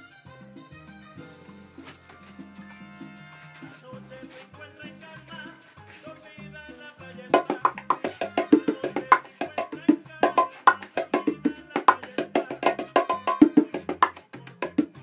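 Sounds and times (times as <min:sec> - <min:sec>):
bongos played with bare hands: 0:00.0 - 0:15.0.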